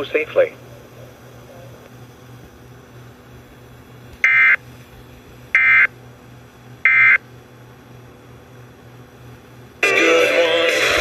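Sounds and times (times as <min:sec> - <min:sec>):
faint radio hiss: 0:00.0 - 0:05.0
screechy digital data tone bursts: 0:04.2 - 0:04.6, 0:05.6 - 0:05.9, 0:06.9 - 0:07.2.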